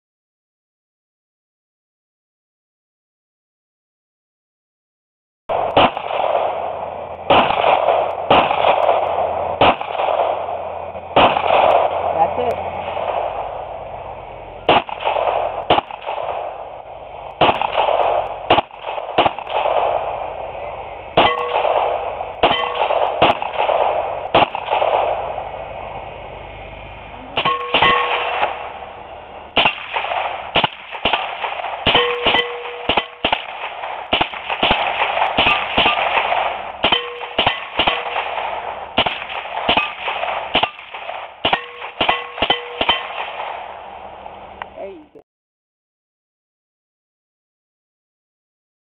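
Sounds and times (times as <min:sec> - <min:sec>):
pistol gunshots: 0:05.5 - 0:13.8, 0:14.6 - 0:25.5, 0:27.4 - 0:44.0
rifle firing in quick succession: 0:05.5 - 0:13.8, 0:14.6 - 0:25.6, 0:27.4 - 0:44.2
metallic ring: 0:27.4 - 0:28.4, 0:31.9 - 0:33.2, 0:36.9 - 0:38.2, 0:41.6 - 0:43.2.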